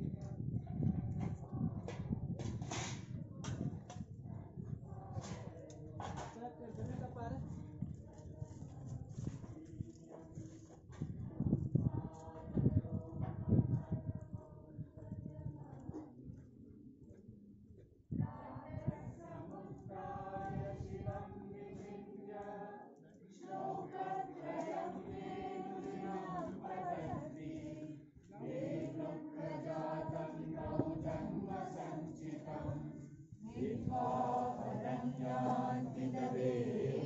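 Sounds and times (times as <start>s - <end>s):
group of voices chanting: 23.4s - 37.0s.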